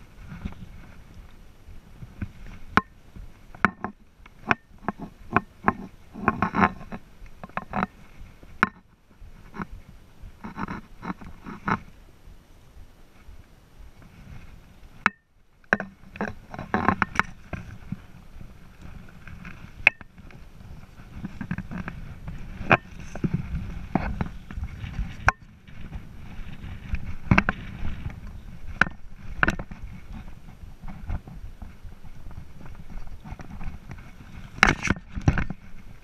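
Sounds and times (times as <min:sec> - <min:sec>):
clothing and gear rustling: 0:00.0 - 0:12.0, 0:12.7 - 0:15.0, 0:15.9 - 0:36.0.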